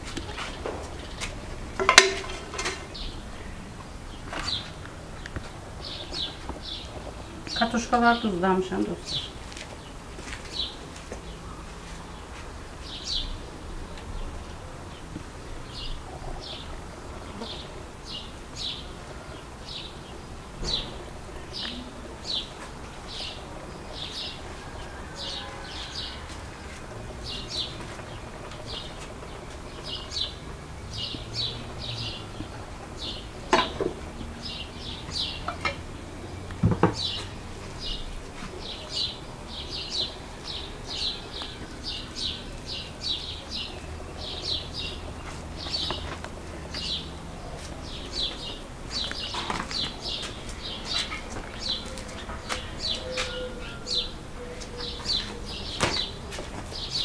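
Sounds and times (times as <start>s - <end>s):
sharp knocks: 1.8s - 3.0s.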